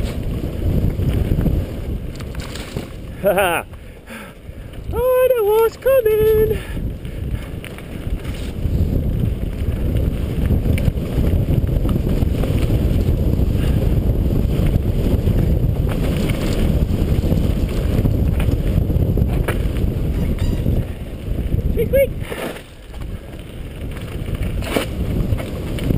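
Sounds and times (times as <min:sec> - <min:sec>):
bike rattling and knocking: 0:00.0 - 0:05.0, 0:06.6 - 0:25.9
wind buffeting microphone: 0:00.0 - 0:25.9
tyres rumbling on dirt: 0:06.8 - 0:25.9.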